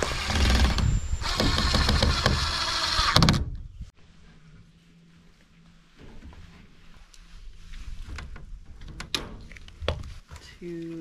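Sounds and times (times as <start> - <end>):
cordless drill driving a screw: 0.0 - 3.4.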